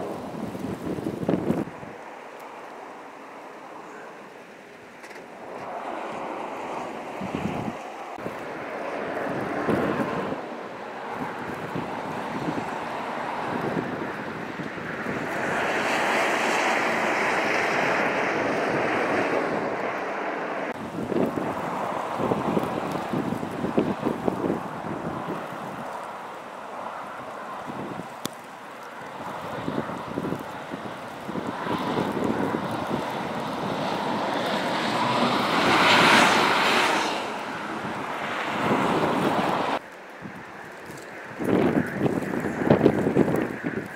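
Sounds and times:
blizzard wind on microphone: 0.0s - 43.9s
highway traffic rushing: 0.0s - 43.9s.

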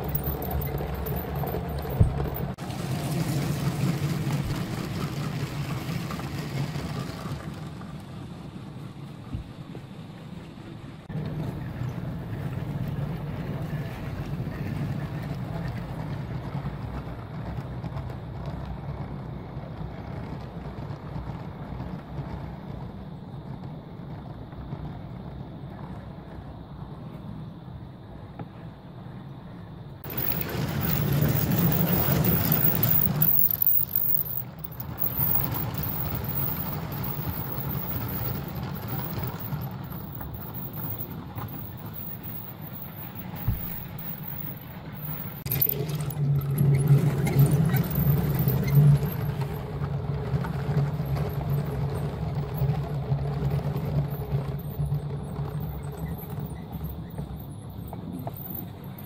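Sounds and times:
wheels rumbling on track: 0.0s - 59.0s
toy train motor hum: 30.0s - 49.4s.

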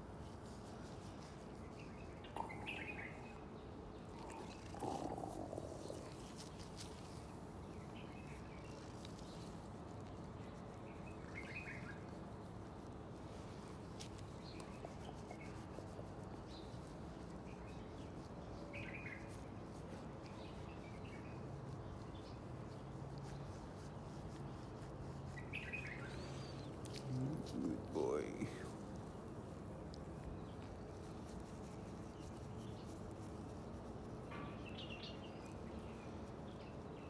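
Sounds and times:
birds chirping: 1.7s - 9.5s, 25.4s - 28.8s.

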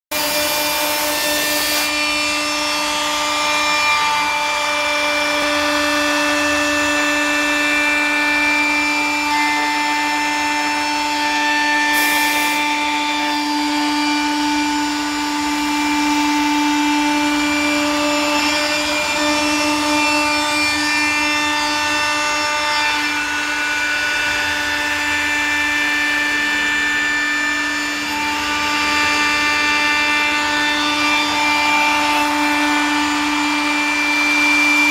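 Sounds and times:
router spindle whine: 0.1s - 34.9s.

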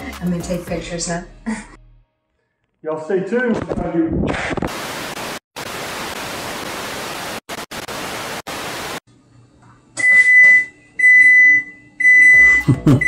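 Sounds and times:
tv static hiss: 4.3s - 9.0s
high electronic appliance beep: 10.0s - 13.0s.

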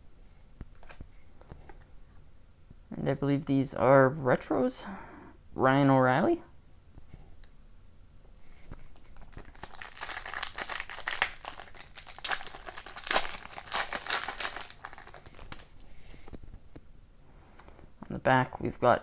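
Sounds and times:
foil wrapper tearing and crinkling: 9.2s - 15.7s.

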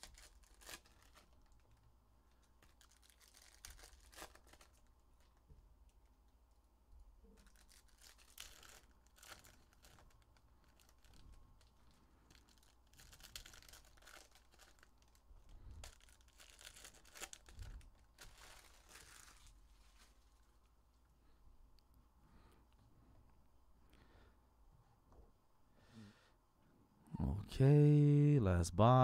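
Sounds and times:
foil wrappers tearing and crinkling: 0.0s - 1.8s, 2.4s - 5.4s, 7.3s - 20.5s.

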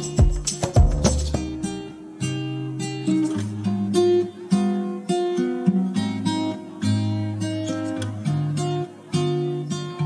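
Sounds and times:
acoustic guitar playing: 0.0s - 10.0s.

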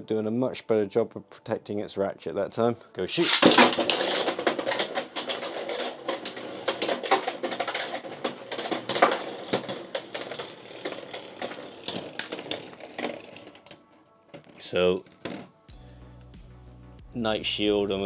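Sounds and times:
sharp hits of tops clashing: 3.2s - 13.5s
spinning tops clicking and rattling: 3.2s - 13.7s
top scraping plastic stadium: 3.2s - 13.8s.

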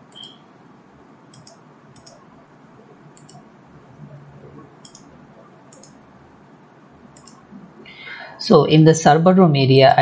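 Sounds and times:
faint room hiss: 0.0s - 10.0s
computer mouse clicking: 0.1s - 0.4s, 1.3s - 2.2s, 3.2s - 3.4s, 4.8s - 5.1s, 5.7s - 6.0s, 7.1s - 7.4s.

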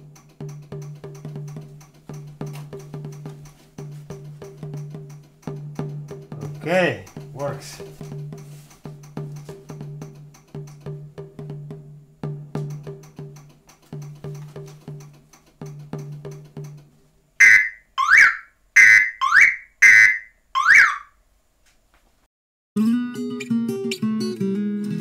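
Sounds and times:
background music with steady beat: 0.0s - 20.2s
two-tone police horn blasts: 17.4s - 21.1s.

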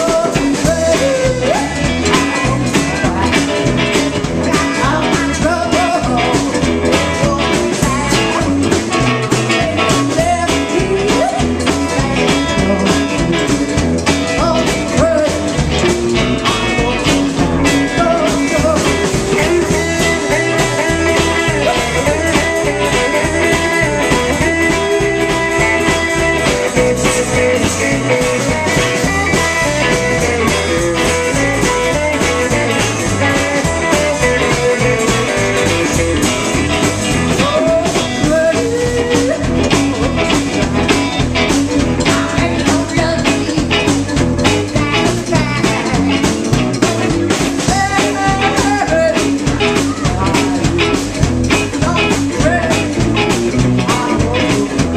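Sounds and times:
woman singing: 0.0s - 13.2s, 16.8s - 36.6s, 41.8s - 46.7s, 47.6s - 50.9s
drums: 0.0s - 54.9s
electric guitar: 0.0s - 54.9s
upright bass: 0.0s - 54.9s.

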